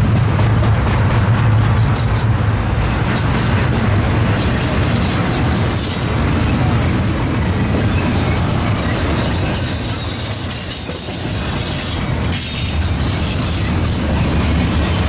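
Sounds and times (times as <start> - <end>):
freight train wheels rumbling on rails: 0.0 - 15.0.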